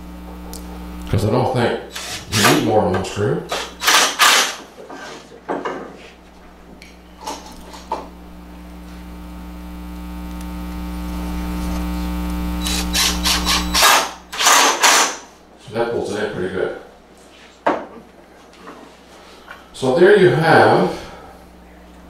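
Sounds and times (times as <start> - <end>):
cordless drill motor humming: 1.9 - 2.5, 7.8 - 15.2
clicks: 10.2 - 13.9.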